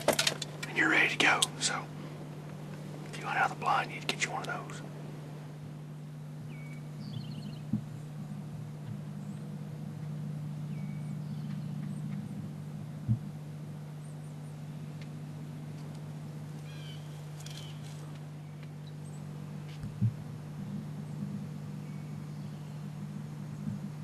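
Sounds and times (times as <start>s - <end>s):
steady low hum: 0.0s - 24.0s
faint bird chirps: 6.4s - 13.4s, 16.5s - 20.0s, 20.6s - 24.0s
dull thumps: 19.7s - 20.4s.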